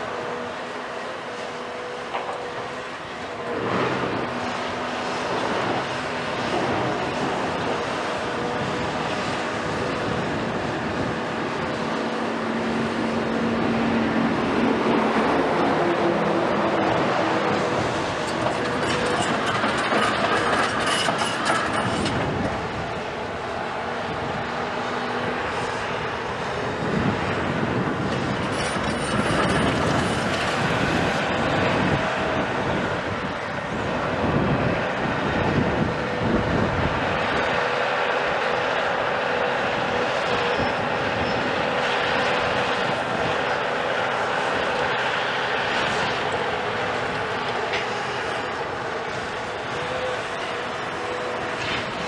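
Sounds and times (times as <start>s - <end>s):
excavator diesel engine under load: 0.0s - 52.0s
metallic clanking and scraping: 18.2s - 22.2s, 28.2s - 31.2s.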